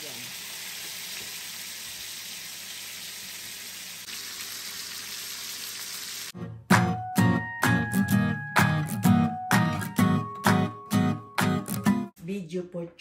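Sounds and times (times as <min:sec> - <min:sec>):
meat sizzling in hot oil: 0:00.0 - 0:06.4
strummed guitar music: 0:06.4 - 0:12.1.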